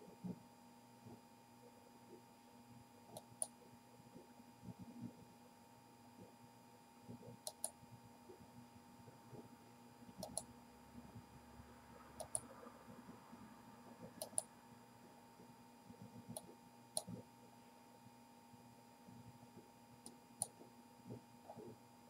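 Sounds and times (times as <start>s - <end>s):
computer mouse button clicking: 10.2s - 10.5s, 12.2s - 12.4s, 14.2s - 14.5s.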